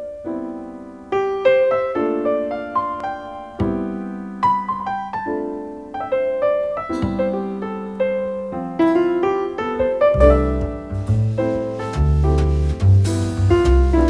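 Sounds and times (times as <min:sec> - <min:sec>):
gentle piano melody: 0:00.0 - 0:14.0
held bass note: 0:10.1 - 0:14.0.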